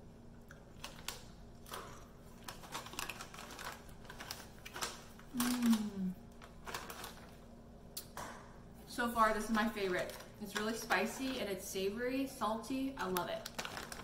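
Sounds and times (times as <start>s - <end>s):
chips being chewed: 0.4s - 7.4s, 13.1s - 14.0s
foil snack bag crinkling: 0.6s - 7.5s, 9.3s - 11.5s, 12.8s - 14.0s
person humming: 5.3s - 6.2s.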